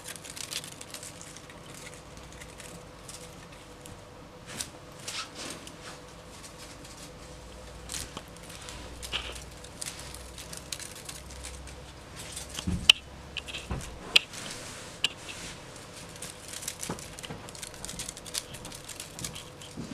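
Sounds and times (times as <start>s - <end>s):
paws scrabbling on fabric: 4.4s - 19.9s.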